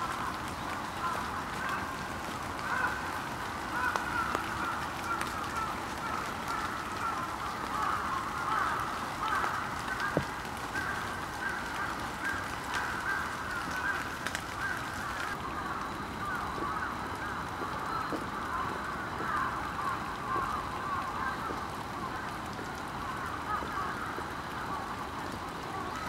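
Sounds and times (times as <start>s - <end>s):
flock of birds calling: 0.0s - 26.0s.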